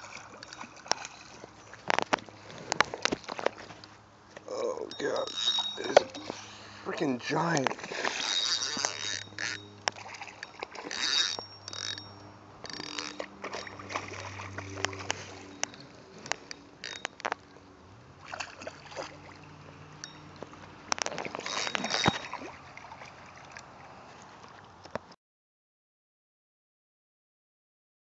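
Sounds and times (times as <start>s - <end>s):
fish splashing and thrashing: 0.0s - 25.0s
knocks and clicks from tackle: 1.8s - 3.8s, 20.4s - 22.4s.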